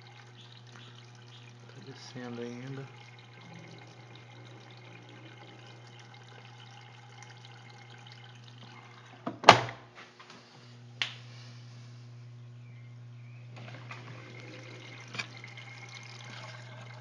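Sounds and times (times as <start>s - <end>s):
water trickling and draining: 0.0s - 9.2s, 13.5s - 17.0s
steady low hum: 0.0s - 17.0s.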